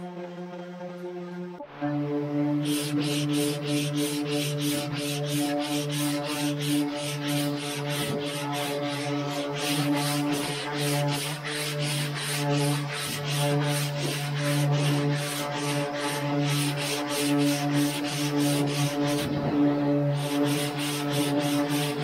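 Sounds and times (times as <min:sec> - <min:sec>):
electric sander humming: 0:00.0 - 0:22.0
sanding block rasping: 0:02.3 - 0:22.0.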